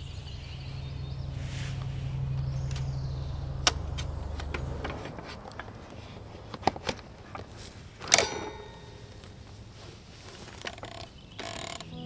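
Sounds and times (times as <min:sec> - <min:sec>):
low steady hum: 0:00.0 - 0:12.0
bicycle gear clicks and knocks: 0:03.6 - 0:09.4, 0:10.4 - 0:11.9
sharp metallic clank: 0:08.0 - 0:09.6.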